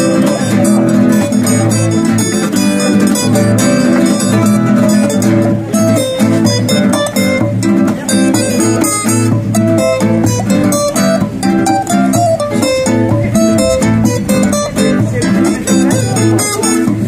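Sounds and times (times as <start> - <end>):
acoustic guitar duet: 0.0 - 17.0.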